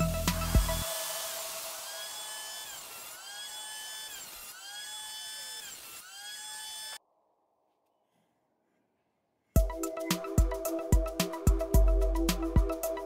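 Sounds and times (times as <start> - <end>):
electric planer whining: 0.0 - 7.0.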